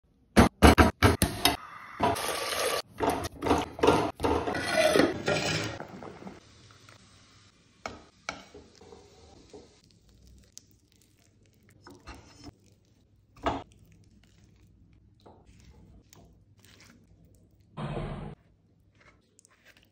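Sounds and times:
knocks and clatter on board and pot: 2.9s - 6.4s.

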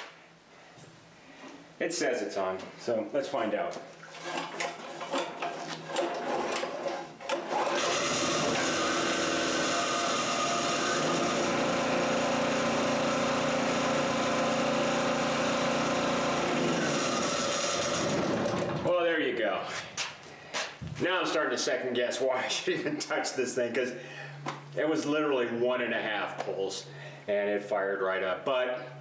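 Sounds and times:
generator engine running: 7.4s - 18.9s.

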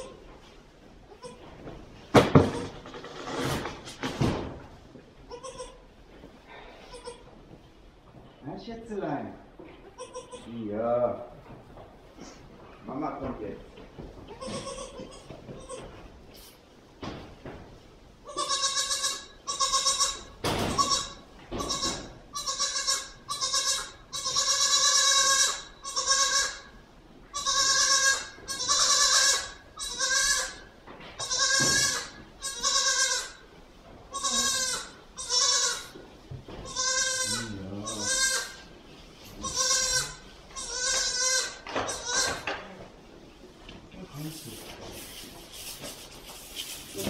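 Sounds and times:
goat kid bleating: 0.0s - 0.2s, 1.1s - 1.6s, 5.2s - 5.9s, 6.7s - 7.4s, 9.8s - 10.6s, 14.2s - 16.0s, 18.2s - 26.7s, 27.3s - 33.4s, 34.1s - 36.0s, 36.6s - 38.7s, 39.3s - 42.9s.

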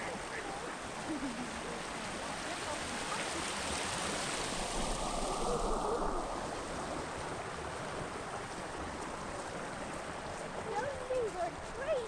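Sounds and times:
creek water rushing over rocks: 0.0s - 12.0s.

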